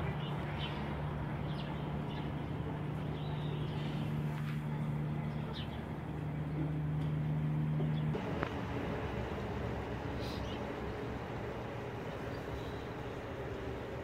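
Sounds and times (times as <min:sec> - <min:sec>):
low motor hum: 0:00.0 - 0:14.0.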